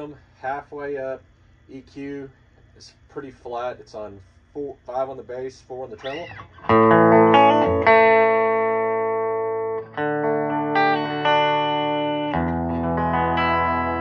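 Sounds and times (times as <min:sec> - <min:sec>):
electric guitar chords: 0:06.0 - 0:14.0.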